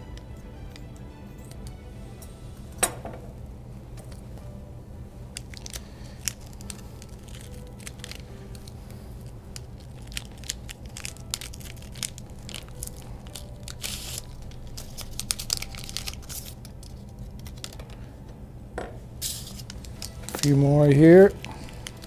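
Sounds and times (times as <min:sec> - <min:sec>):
paper wrapping crinkling and tearing: 0:05.4 - 0:18.0, 0:19.2 - 0:22.0.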